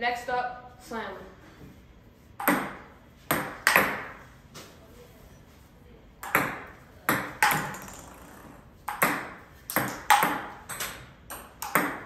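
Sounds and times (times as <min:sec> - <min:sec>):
ping-pong ball clacks: 0:02.4 - 0:04.1, 0:06.2 - 0:12.0.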